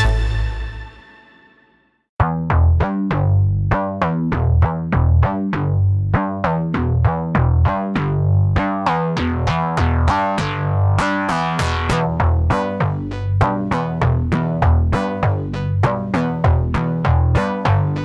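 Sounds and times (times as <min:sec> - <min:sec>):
electronic music with bass line: 0:00.0 - 0:01.4, 0:02.2 - 0:18.0
background music: 0:00.0 - 0:02.0.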